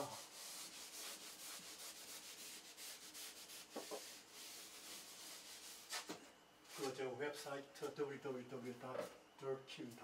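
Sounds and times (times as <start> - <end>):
eraser rubbing on blackboard: 0.0 - 6.2.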